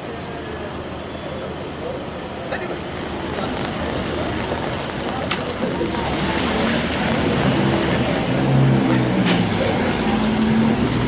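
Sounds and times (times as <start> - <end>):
traffic noise: 0.0 - 11.0.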